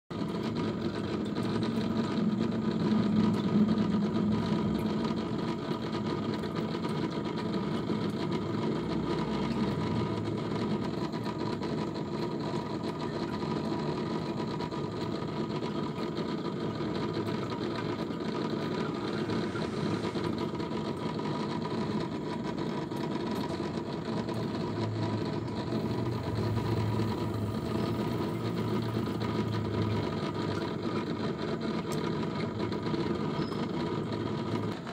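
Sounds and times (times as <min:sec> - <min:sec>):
aquarium pump humming: 0:00.1 - 0:34.9.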